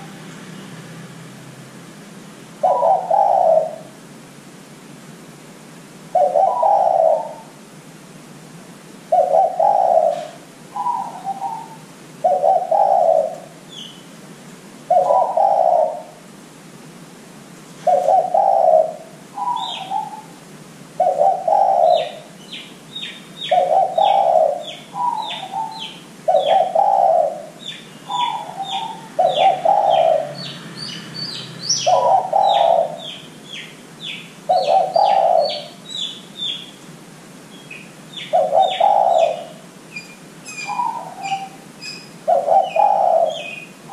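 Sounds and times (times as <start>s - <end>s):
dove cooing: 2.6s - 4.0s, 6.1s - 7.6s, 9.1s - 13.6s, 14.9s - 16.2s, 17.8s - 20.4s, 21.0s - 22.4s, 23.4s - 30.6s, 31.7s - 36.6s, 37.7s - 43.9s
small bird chirping rapidly: 39.9s - 43.7s.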